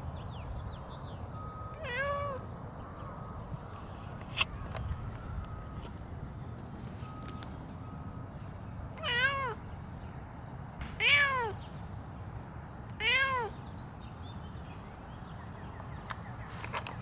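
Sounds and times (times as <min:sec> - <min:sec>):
cat meowing: 0:01.8 - 0:02.5, 0:09.0 - 0:09.6, 0:11.0 - 0:11.6, 0:13.0 - 0:13.6.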